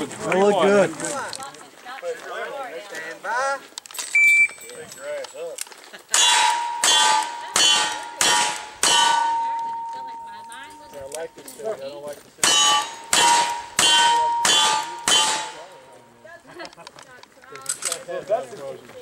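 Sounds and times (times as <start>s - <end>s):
steel plate ringing: 6.1s - 11.2s, 12.4s - 16.0s.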